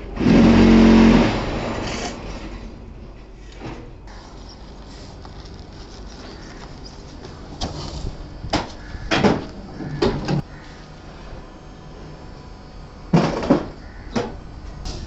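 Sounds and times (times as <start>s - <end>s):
sand mix sliding: 4.1s - 8.2s.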